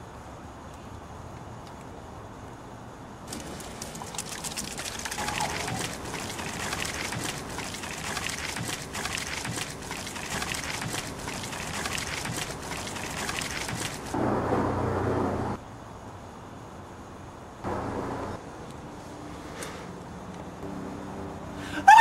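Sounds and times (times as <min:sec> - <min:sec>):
beer splashing and fizzing on bricks: 0:03.3 - 0:14.2.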